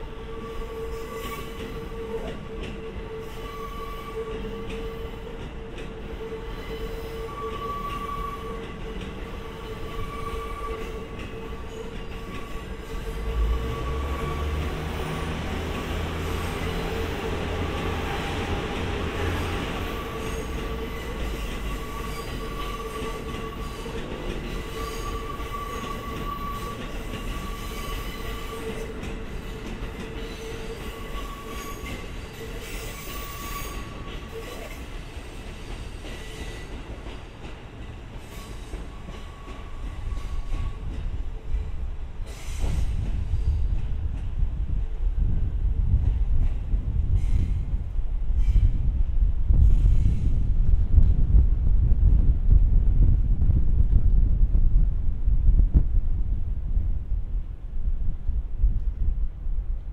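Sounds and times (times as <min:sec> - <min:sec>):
low hum of rail vehicles: 0:00.0 - 0:59.9
deep rumble: 0:44.1 - 0:59.9.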